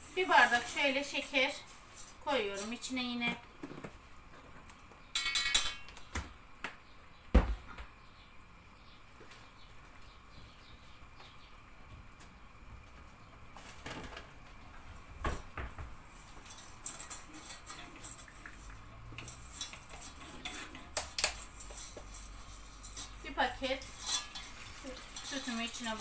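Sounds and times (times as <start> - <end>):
metal spoon scraping a pot: 5.2 - 5.9, 16.3 - 26.0.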